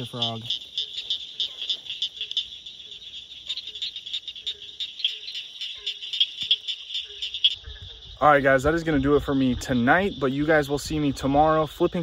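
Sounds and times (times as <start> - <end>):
frog calling with high clicks: 0.0 - 8.2.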